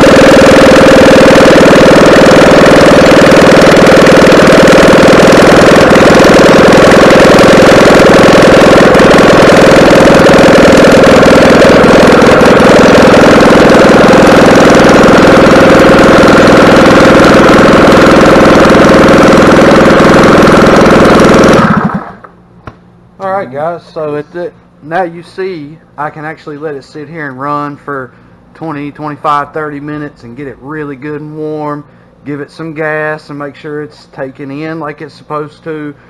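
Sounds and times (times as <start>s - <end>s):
golf cart engine running: 0.0s - 22.4s.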